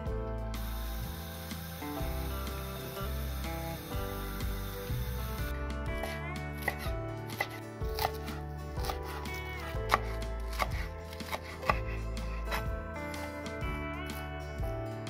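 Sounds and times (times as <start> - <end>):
soft background music: 0.0 - 15.0
knife chopping on a wooden board: 6.0 - 12.7.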